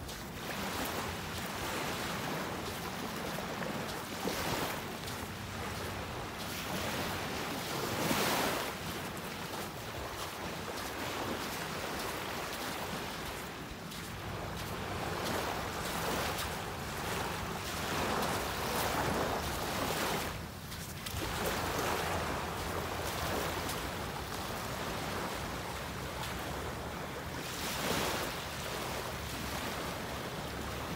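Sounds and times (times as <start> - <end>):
surf washing on beach: 0.0 - 30.9
wind: 0.0 - 30.9.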